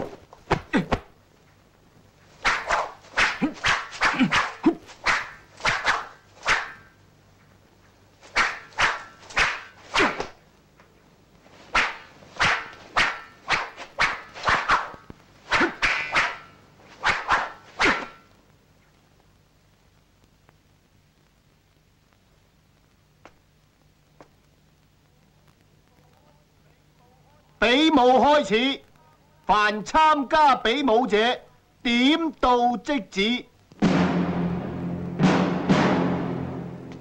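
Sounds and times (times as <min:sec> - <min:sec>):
staff swishing through air: 0:02.4 - 0:06.9, 0:08.2 - 0:10.4, 0:11.6 - 0:18.2.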